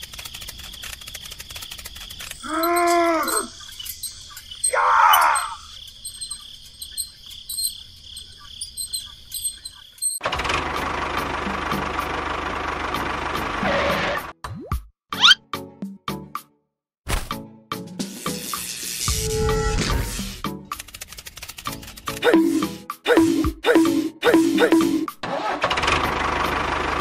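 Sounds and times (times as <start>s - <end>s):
crickets chirping: 0.0s - 10.2s.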